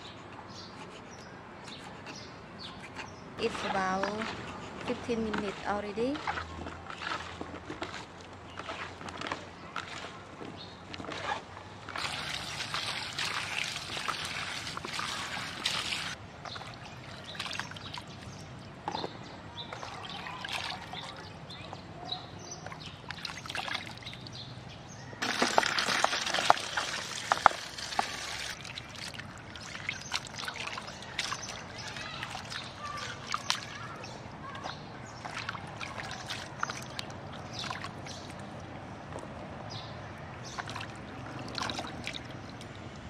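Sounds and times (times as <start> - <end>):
water sloshing and trickling: 3.4 - 21.9, 22.5 - 43.0
water pouring: 11.9 - 18.0, 25.2 - 33.9, 40.6 - 42.7.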